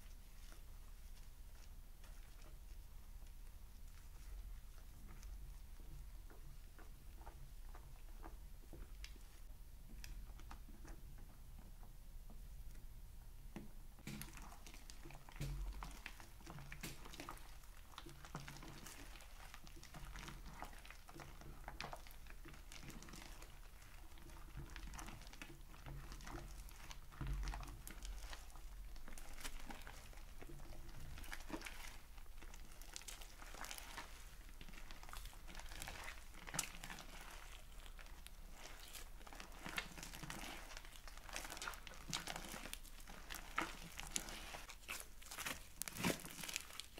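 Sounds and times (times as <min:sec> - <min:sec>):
slime crackling and popping: 0:14.0 - 0:46.9.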